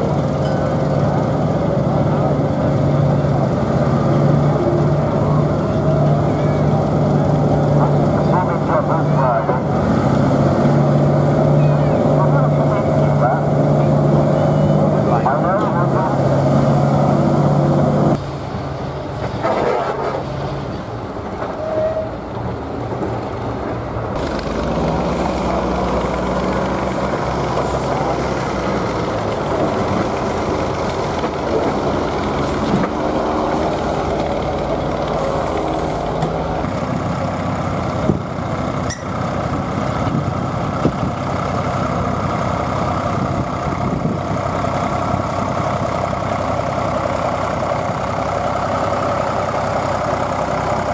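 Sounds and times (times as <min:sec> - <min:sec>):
tractor engine running: 0:00.0 - 0:21.4, 0:23.0 - 0:50.9
heavy vehicle engine: 0:00.0 - 0:50.9
steam locomotive hissing: 0:24.2 - 0:28.2, 0:35.0 - 0:36.2.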